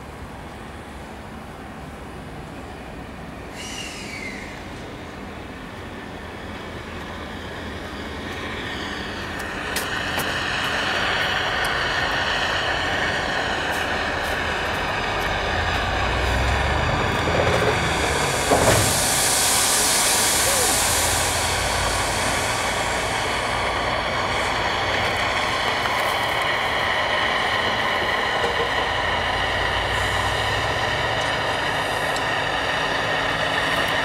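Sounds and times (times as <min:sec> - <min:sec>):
high steam hiss: 0:00.0 - 0:34.0.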